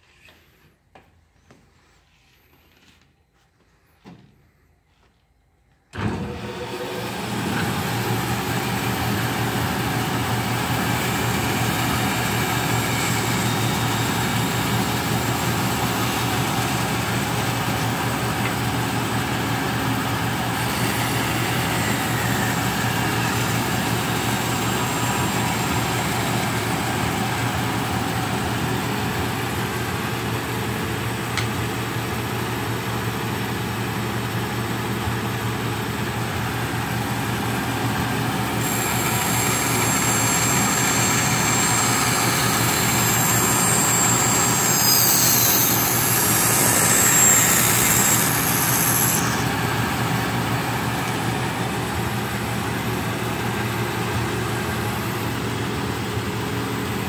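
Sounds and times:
band saw running: 6.2 - 31.5, 36.3 - 55.6
board cut by saw blade: 6.4 - 29.0, 38.5 - 51.3.

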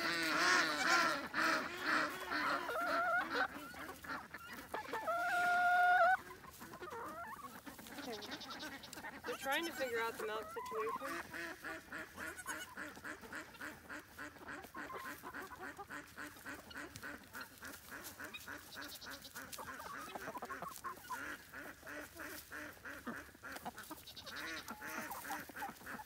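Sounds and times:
poultry calling: 0.0 - 26.0.

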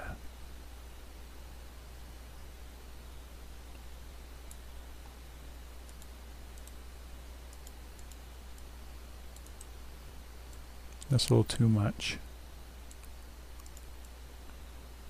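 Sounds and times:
low hum and hiss: 0.0 - 15.0
computer mouse clicks: 3.7 - 5.2, 5.8 - 6.8, 7.5 - 8.7, 9.3 - 9.8, 10.5 - 11.7, 12.8 - 14.6.

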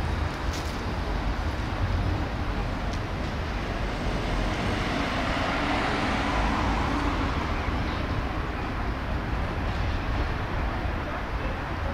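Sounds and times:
tram wheels rumbling: 0.0 - 11.9.

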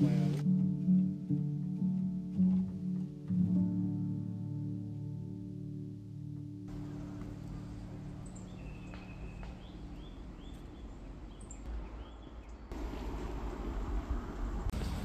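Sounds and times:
small bird chirping: 6.8 - 12.8.

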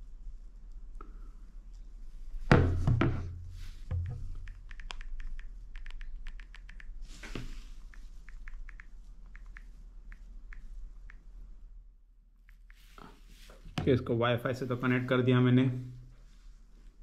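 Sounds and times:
phone keyboard clicks: 4.0 - 7.0, 7.9 - 11.2.

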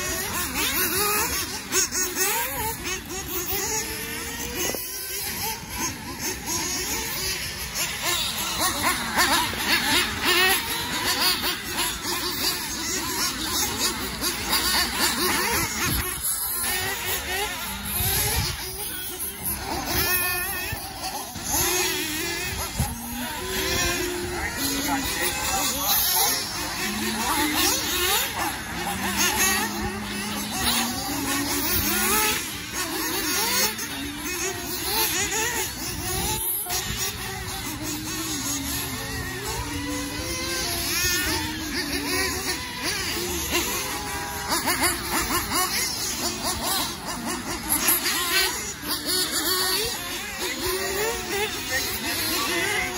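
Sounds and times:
rc car engines whining: 0.0 - 52.9.

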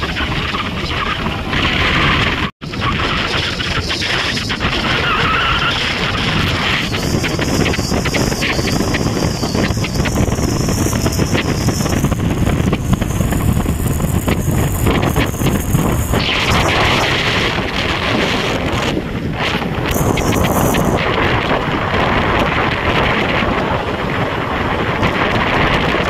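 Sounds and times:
vehicle engine and road noise: 0.0 - 26.0
wind on microphone: 0.0 - 26.0.

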